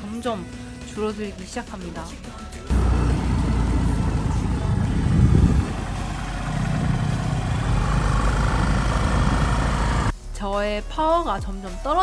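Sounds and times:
vehicle engine rumbling: 0:02.7 - 0:10.1.

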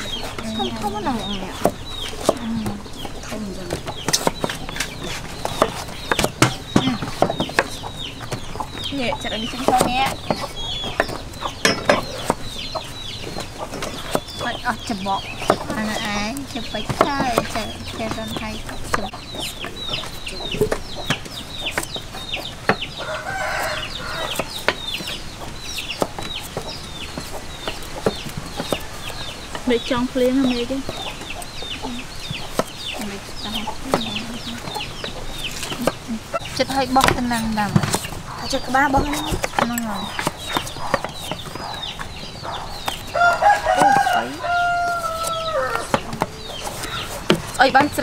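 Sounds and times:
chickens clucking: 0:00.0 - 0:48.0
chicks peeping: 0:00.0 - 0:48.0
cleaver chopping on wooden block: 0:03.7 - 0:12.8, 0:36.6 - 0:48.0.

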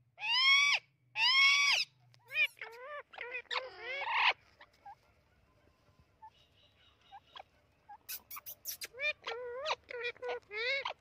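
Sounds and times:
parrot wavering squawks: 0:00.2 - 0:05.0, 0:07.3 - 0:11.0
parrot sharp high squeaks: 0:01.7 - 0:04.4, 0:07.1 - 0:11.0
parrot faint chirps: 0:02.2 - 0:11.0.

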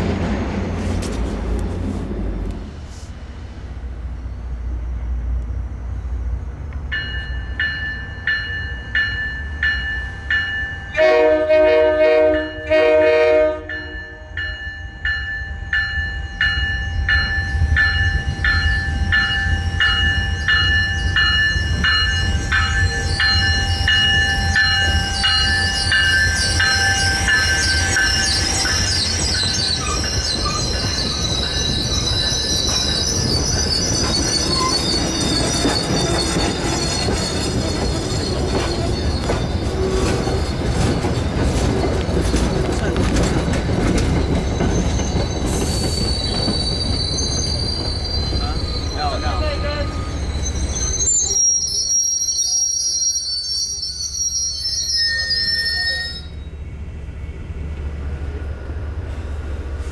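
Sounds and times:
rails rumbling: 0:00.0 - 0:51.4, 0:53.8 - 0:59.9
train horn blasts: 0:10.9 - 0:14.4
warning bell ringing: 0:13.6 - 0:40.9
train wheels squealing: 0:13.7 - 0:59.9.

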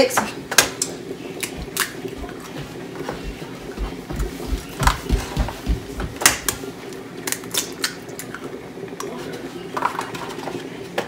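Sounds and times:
steady low hum: 0:00.3 - 0:11.0
eggs cracking on a metal bowl: 0:00.6 - 0:02.4, 0:07.2 - 0:08.4.

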